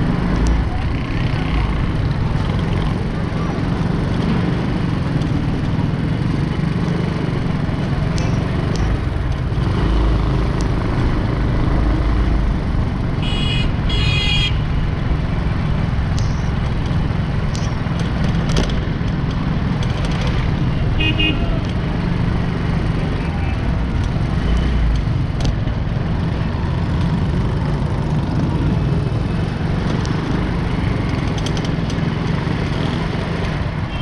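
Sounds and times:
road traffic rumble: 0.0 - 34.0
high-pitched horn toots: 13.2 - 14.6.

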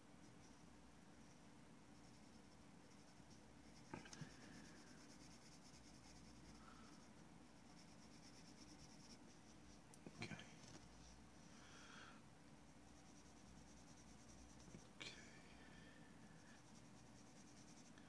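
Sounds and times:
pencil scratching on paper: 2.0 - 9.8, 12.9 - 14.9, 16.4 - 18.0.

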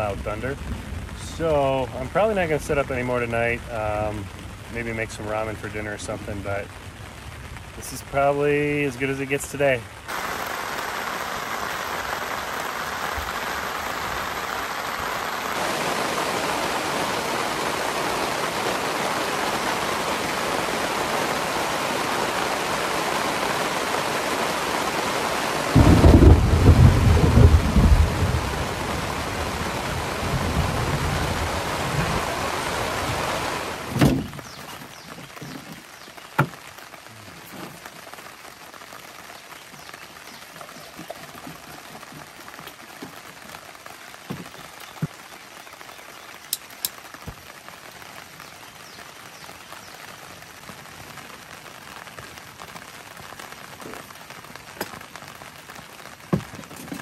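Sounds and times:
heavy rain: 0.0 - 57.0
deep thunder rumble: 25.7 - 33.2.

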